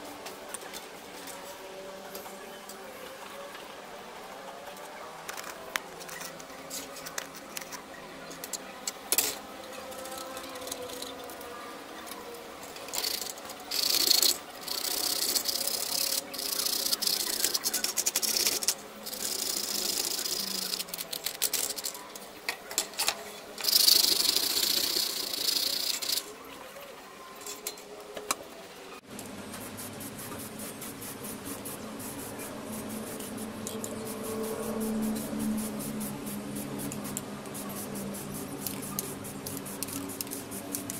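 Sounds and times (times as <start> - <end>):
sandpaper scrubbing metal: 12.9 - 22.0, 23.6 - 26.3, 29.5 - 40.9.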